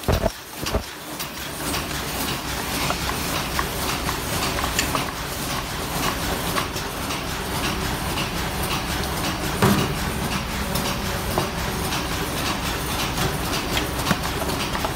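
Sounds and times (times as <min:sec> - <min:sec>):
machine clattering rapidly: 0:00.0 - 0:14.9.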